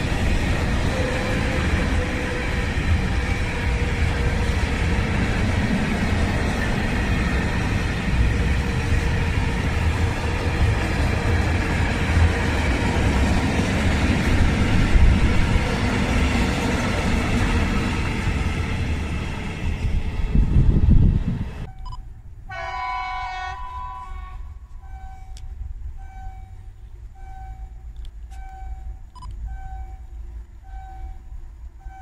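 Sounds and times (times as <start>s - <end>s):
train wheels rumbling on rails: 0.0s - 21.9s.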